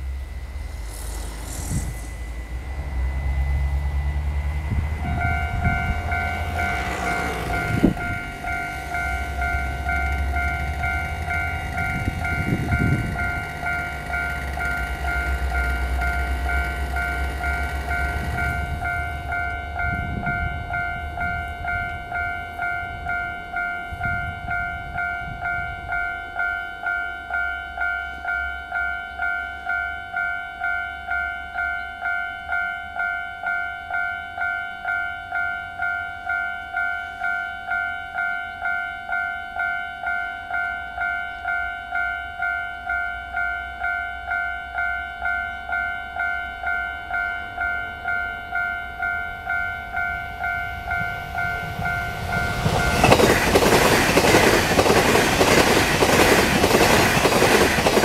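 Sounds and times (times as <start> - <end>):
low rumble: 0.0 - 6.7.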